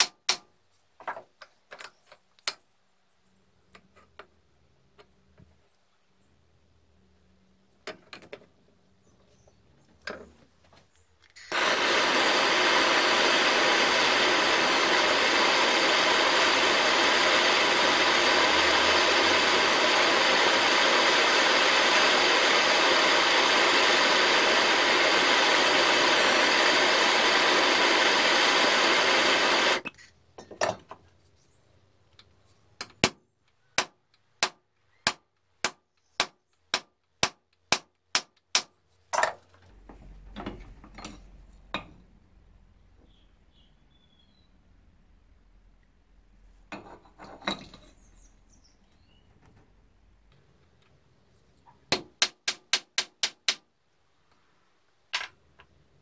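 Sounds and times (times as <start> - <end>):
blowtorch hissing: 11.4 - 29.9.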